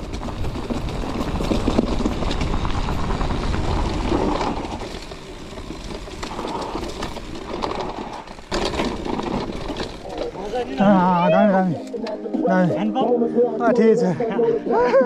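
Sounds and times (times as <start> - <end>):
wind rumbling on microphone: 0.0 - 10.3
bike clattering over bumps: 0.0 - 12.5
bike tyres rolling over dirt: 0.0 - 13.1.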